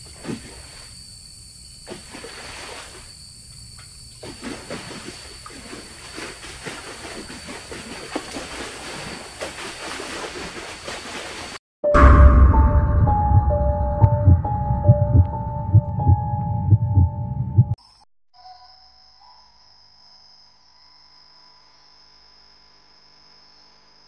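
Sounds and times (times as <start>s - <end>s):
night insects droning: 0.0s - 11.3s, 17.8s - 24.0s.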